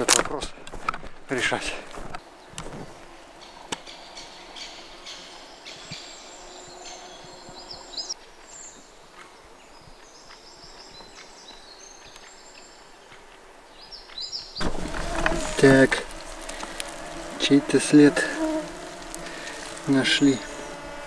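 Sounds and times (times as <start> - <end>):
small birds chirping and singing: 2.2 - 21.0.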